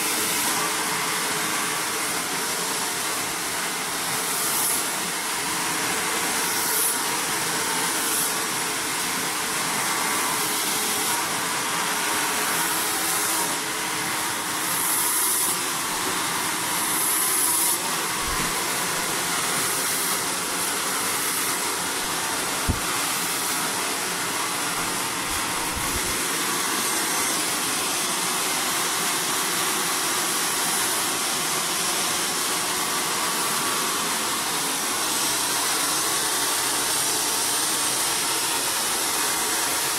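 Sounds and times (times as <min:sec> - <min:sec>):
hair dryer blowing: 0:00.0 - 0:39.9.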